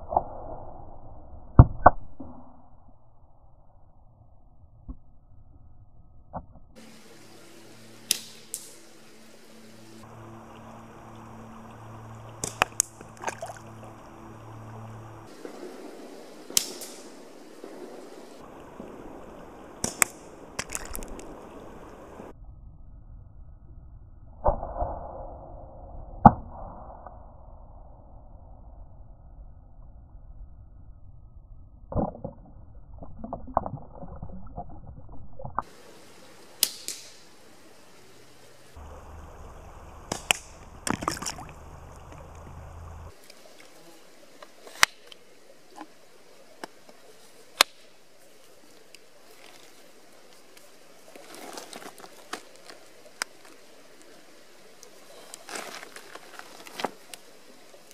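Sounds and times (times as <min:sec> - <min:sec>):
low steady hum: 0:00.7 - 0:24.4, 0:27.4 - 0:57.9
creek water running: 0:06.8 - 0:22.3, 0:35.6 - 0:57.9
slingshot snap: 0:08.1 - 0:08.8, 0:16.6 - 0:17.1, 0:36.6 - 0:37.3, 0:40.1 - 0:40.6
slingshot shots cracking: 0:16.5 - 0:17.3, 0:36.6 - 0:37.2.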